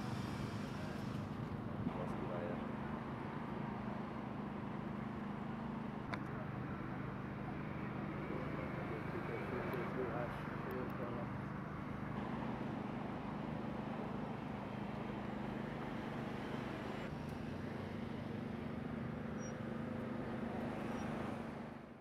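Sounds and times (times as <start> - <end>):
engine idling: 0.0 - 11.2.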